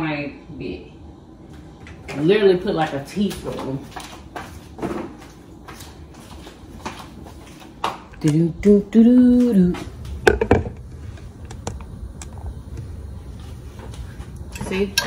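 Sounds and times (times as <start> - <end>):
camera handling knocks: 10.2 - 10.8.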